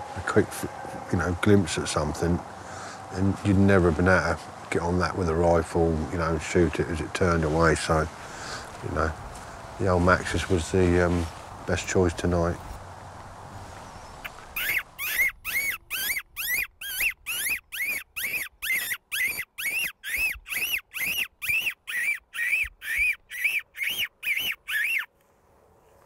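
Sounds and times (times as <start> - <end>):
shrill squeaks of fox call: 14.2 - 25.1.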